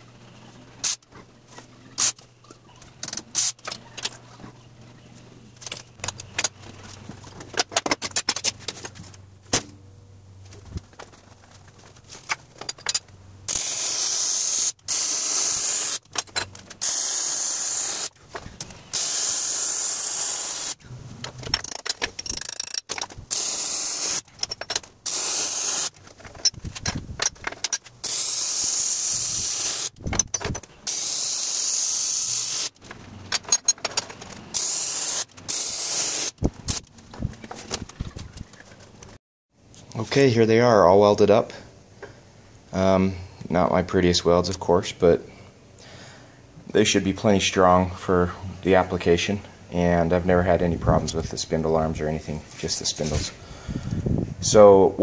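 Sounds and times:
welding arc crackling: 13.5 - 16.1, 16.8 - 18.2, 18.9 - 20.8, 22.4 - 24.3, 25.0 - 26.0, 28.0 - 30.0, 30.9 - 32.8, 34.5 - 36.8.

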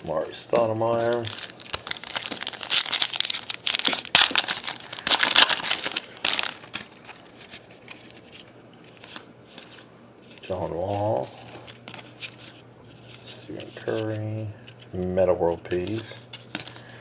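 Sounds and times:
wrapper crinkling as torn open: 1.0 - 8.4.

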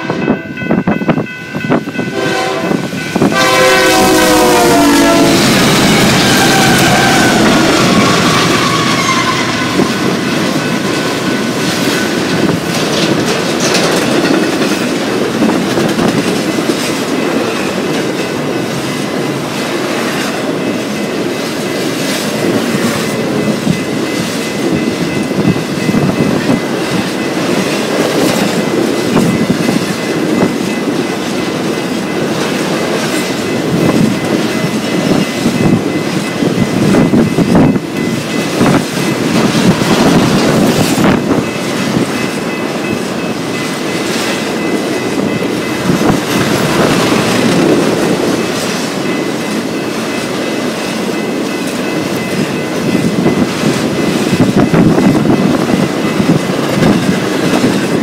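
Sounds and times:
train cars rumbling past: 0.0 - 58.0
train horn blast: 2.0 - 10.1
wheels clicking over rail joints: 9.4 - 18.9.

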